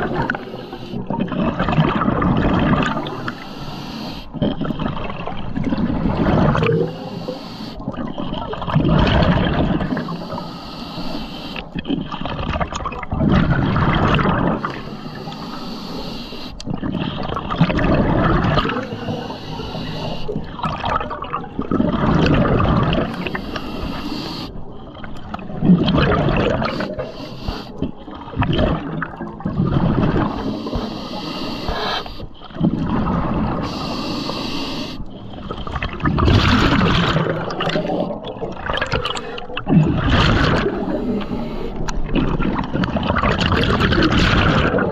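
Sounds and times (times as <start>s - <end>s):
exhaled bubbles gurgling: 0.0s - 44.9s
regulator inhale hiss: 0.2s - 1.0s, 3.2s - 4.3s, 6.9s - 7.8s, 9.9s - 11.7s, 14.6s - 16.6s, 18.8s - 20.4s, 23.1s - 24.6s, 26.6s - 27.8s, 30.3s - 32.4s, 33.6s - 35.1s, 40.8s - 41.9s.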